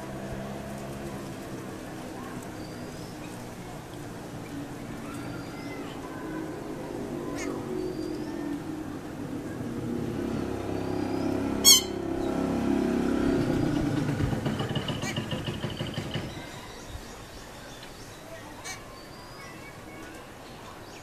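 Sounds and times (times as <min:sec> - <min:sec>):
motor engine droning: 0:00.0 - 0:16.5.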